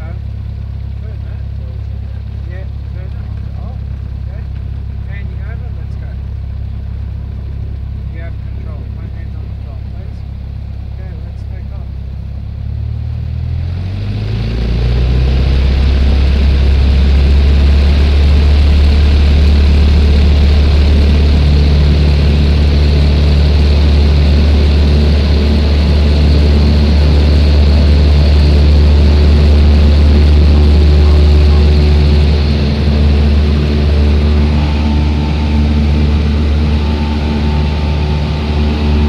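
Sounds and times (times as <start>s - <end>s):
light aircraft engine drone: 0.0s - 39.0s.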